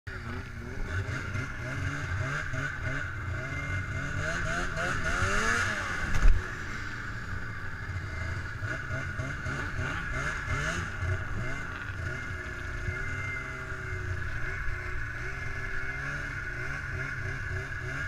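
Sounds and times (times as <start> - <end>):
snowmobile engine revving: 0.1 - 18.0.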